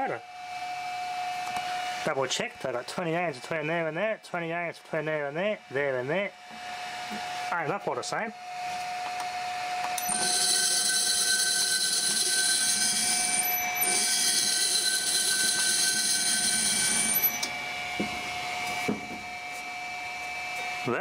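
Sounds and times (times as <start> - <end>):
electric motor high-pitched whine: 8.4 - 21.0.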